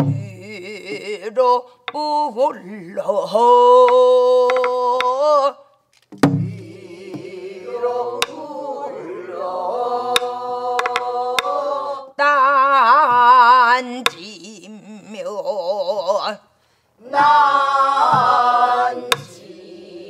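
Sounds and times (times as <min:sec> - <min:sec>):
barrel drum strokes: 0:06.2 - 0:07.4
group of voices singing: 0:06.3 - 0:14.5, 0:17.0 - 0:20.0.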